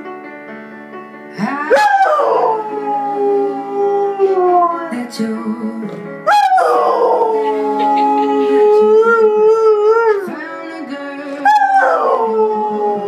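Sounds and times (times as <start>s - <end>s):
piano music: 0.0s - 13.0s
dog howling: 1.6s - 4.8s, 6.3s - 10.3s, 11.4s - 13.0s.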